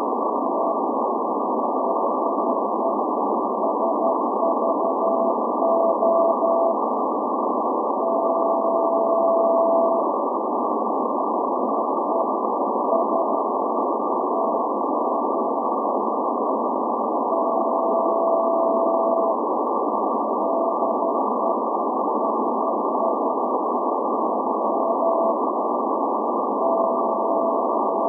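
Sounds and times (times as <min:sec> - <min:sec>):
radio static hiss: 0:00.0 - 0:28.0
morse code tone: 0:03.6 - 0:06.8, 0:08.0 - 0:10.0, 0:17.3 - 0:19.3, 0:26.6 - 0:28.0.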